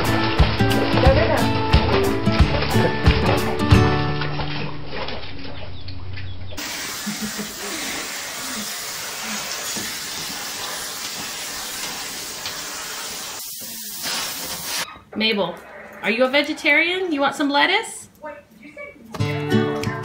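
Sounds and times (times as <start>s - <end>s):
background music: 0.0s - 4.8s, 19.2s - 20.0s
vacuum cleaner hissing: 6.6s - 14.8s.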